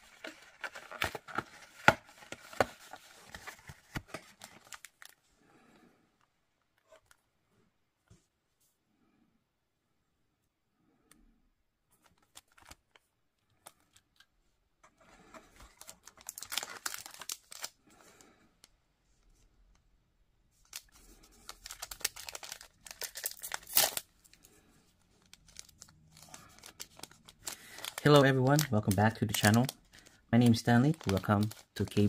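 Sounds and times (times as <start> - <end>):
packaging crinkling and tearing: 0.0 - 5.2, 12.0 - 14.2, 15.6 - 18.3, 20.6 - 24.4, 25.2 - 32.0.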